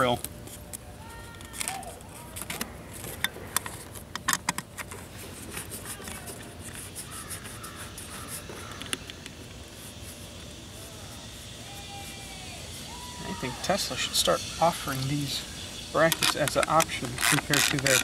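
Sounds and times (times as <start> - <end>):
crows cawing: 7.0 - 9.2, 12.9 - 15.8.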